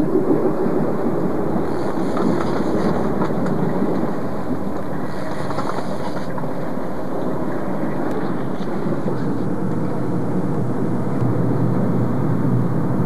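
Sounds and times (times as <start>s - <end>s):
boat engine running: 0.0s - 13.0s
wind on microphone: 0.0s - 13.0s.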